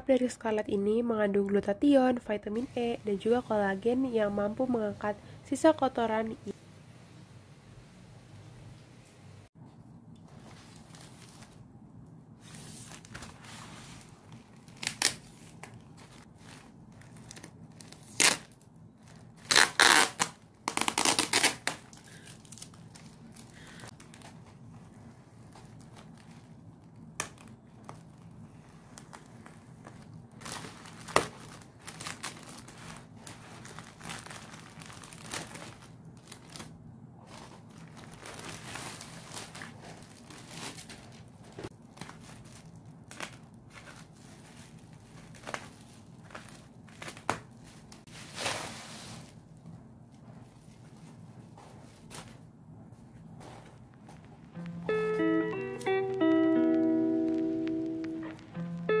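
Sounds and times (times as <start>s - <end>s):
plastic bag crinkling and tearing: 14.0s - 48.5s.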